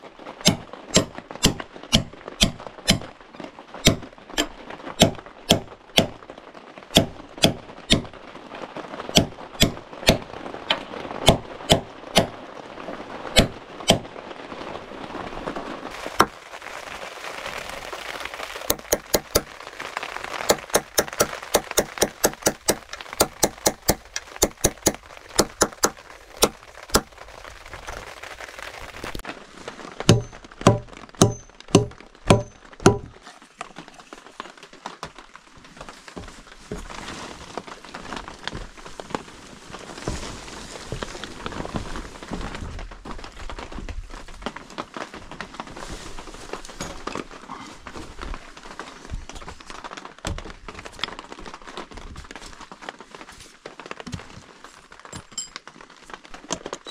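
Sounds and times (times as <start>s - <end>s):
hammer driving nails into wood: 0.5s - 3.1s, 3.8s - 6.2s, 7.0s - 8.1s, 18.7s - 19.5s, 20.5s - 27.1s, 30.1s - 33.2s
steady hiss: 15.9s - 29.2s.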